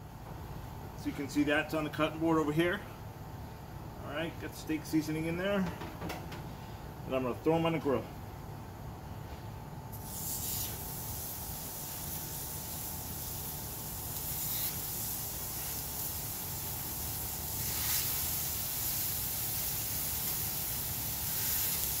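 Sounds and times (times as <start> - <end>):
burger patties sizzling on griddle: 10.0 - 22.0.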